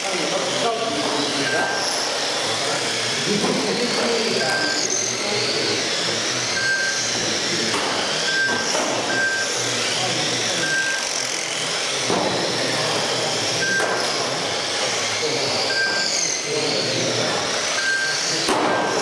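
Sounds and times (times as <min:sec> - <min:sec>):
rc car motors whining: 0:00.0 - 0:19.0.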